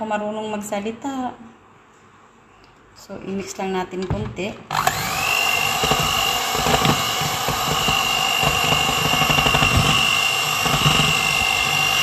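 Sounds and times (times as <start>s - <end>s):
electric hand mixer whining: 4.7s - 12.0s.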